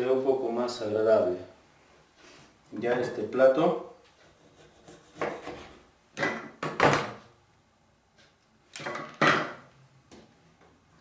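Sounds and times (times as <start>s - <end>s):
knife scraping on board: 4.2s - 5.8s.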